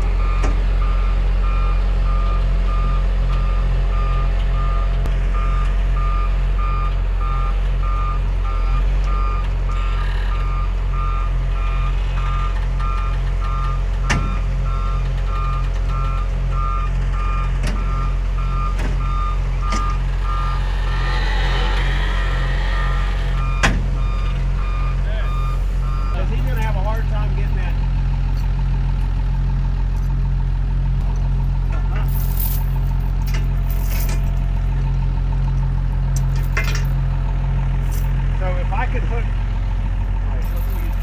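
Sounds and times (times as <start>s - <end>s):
diesel engine running: 0.0s - 41.0s
backup alarm beeping: 10.4s - 20.7s, 22.7s - 26.3s.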